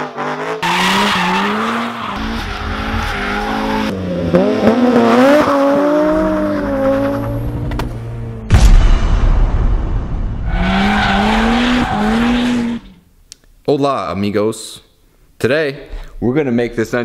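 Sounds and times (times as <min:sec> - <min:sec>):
car engine revving: 0:00.0 - 0:08.5, 0:10.5 - 0:13.0
tyres squealing and skidding: 0:00.6 - 0:04.0, 0:10.5 - 0:13.0.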